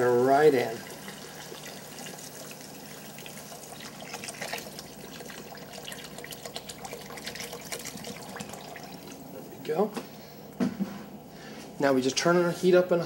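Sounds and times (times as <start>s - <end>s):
liquid pouring into pot: 0.0s - 9.4s
splashing in pot: 0.8s - 9.2s.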